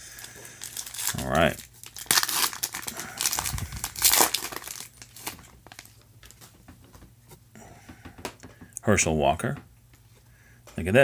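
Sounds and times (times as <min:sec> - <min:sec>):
foil wrapper tearing and crinkling: 0:00.2 - 0:06.4.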